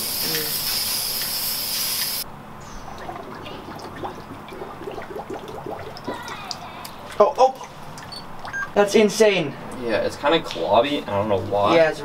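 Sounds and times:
spray can hissing: 0:00.0 - 0:02.2
water sloshing and dripping: 0:02.8 - 0:08.7.

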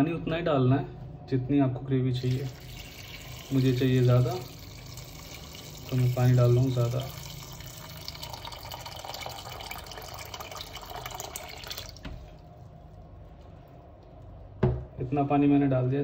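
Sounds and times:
water pouring from jug: 0:02.2 - 0:12.1.

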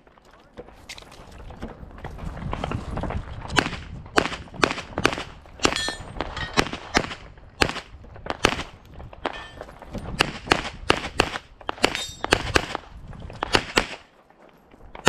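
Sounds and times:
pistol shots: 0:03.6 - 0:09.6, 0:10.2 - 0:12.8, 0:13.4 - 0:14.1.

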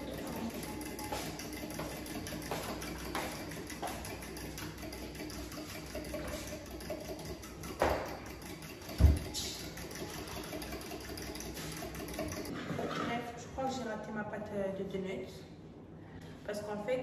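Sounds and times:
spoon stirring batter in bowl: 0:00.0 - 0:12.5.

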